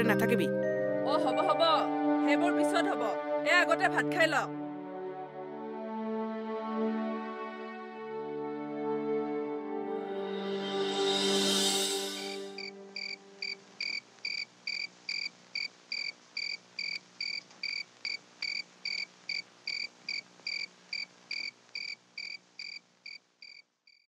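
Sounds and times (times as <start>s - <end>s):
cricket chirping: 11.4s - 24.0s.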